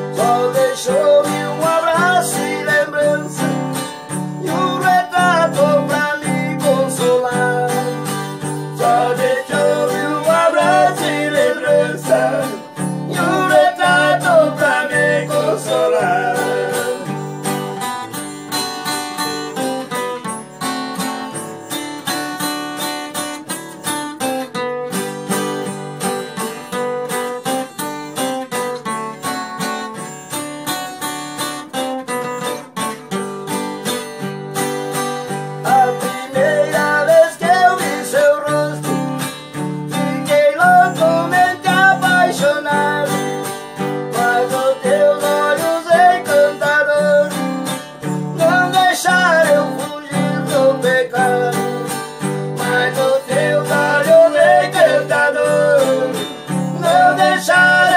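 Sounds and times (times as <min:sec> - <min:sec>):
man singing: 0:00.0 - 0:18.2, 0:35.6 - 0:39.3, 0:39.9 - 0:57.9
acoustic guitars strumming: 0:00.0 - 0:57.9.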